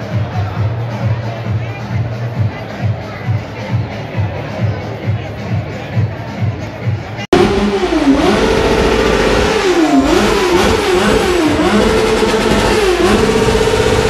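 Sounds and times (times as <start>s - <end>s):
motorcycle engine revving hard: 7.3s - 14.0s.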